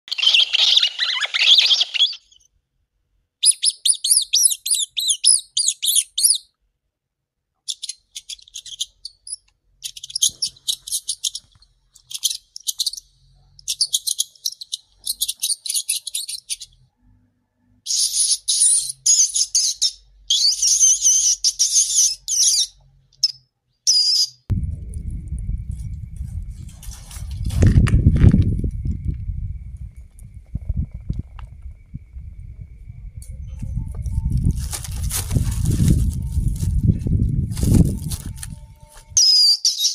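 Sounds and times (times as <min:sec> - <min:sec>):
rat squeaking: 0:03.4 - 0:06.5, 0:07.7 - 0:16.9, 0:17.9 - 0:24.4, 0:33.2 - 0:39.9.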